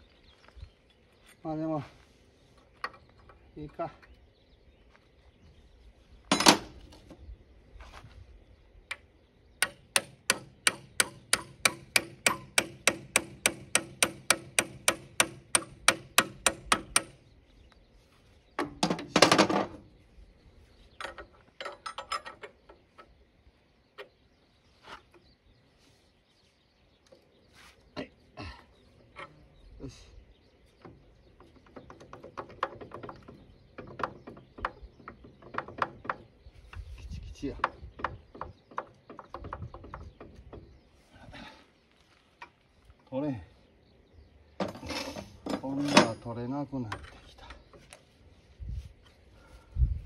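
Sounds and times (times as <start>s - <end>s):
hammer tapping metal: 9.6s - 17.2s.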